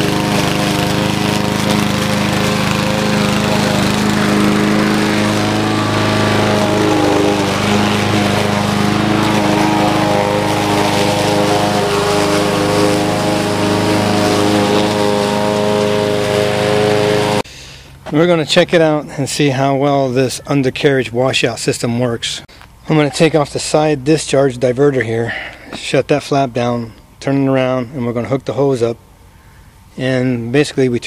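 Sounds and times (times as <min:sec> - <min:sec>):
lawn mower engine running: 0:00.0 - 0:18.0.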